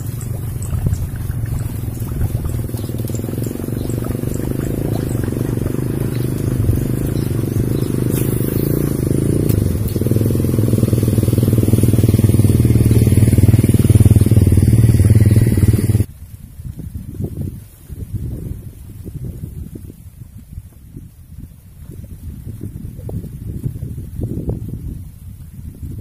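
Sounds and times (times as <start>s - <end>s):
small engine droning: 0.0s - 16.1s
outdoor noise: 0.0s - 26.0s.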